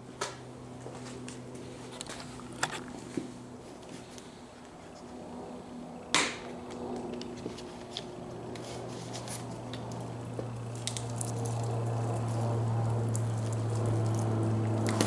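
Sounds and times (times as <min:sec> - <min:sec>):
low steady hum: 0:00.0 - 0:15.0
fluid squirting onto charcoal: 0:09.2 - 0:15.0.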